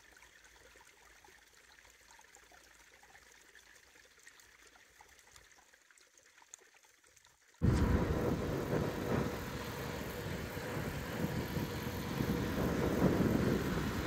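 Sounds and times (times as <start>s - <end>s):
car road and wind noise: 7.6s - 14.0s.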